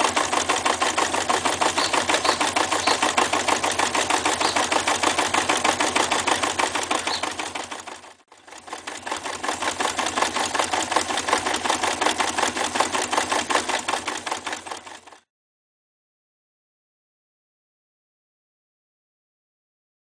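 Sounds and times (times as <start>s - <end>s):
sewing machine stitching: 0.0s - 15.3s.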